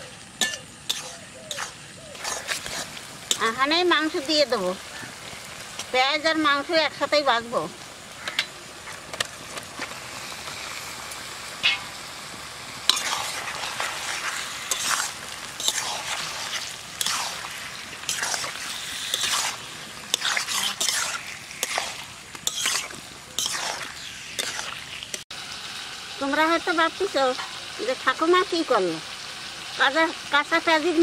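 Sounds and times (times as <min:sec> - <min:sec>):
onions sizzling in oil: 0:00.0 - 0:31.0
metal spatula scraping a pan: 0:00.4 - 0:04.2, 0:11.6 - 0:12.0, 0:12.9 - 0:25.2.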